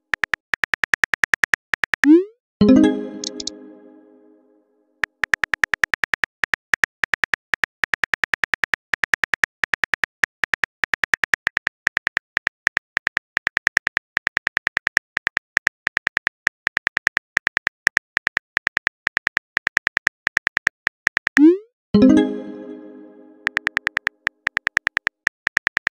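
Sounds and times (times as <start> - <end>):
phone keyboard typing clicks: 3.2 - 3.6, 23.4 - 25.9.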